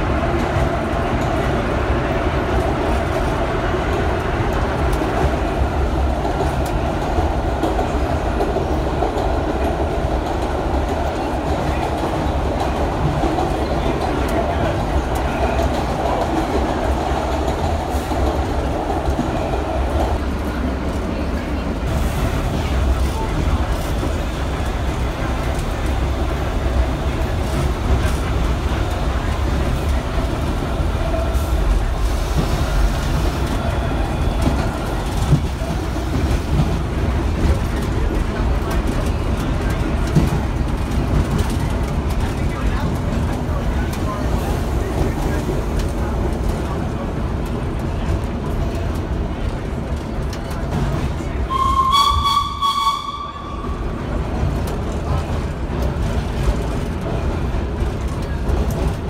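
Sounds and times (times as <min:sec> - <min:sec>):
subway train wheels rumbling: 0:00.0 - 0:59.0
train whistle: 0:51.5 - 0:53.8.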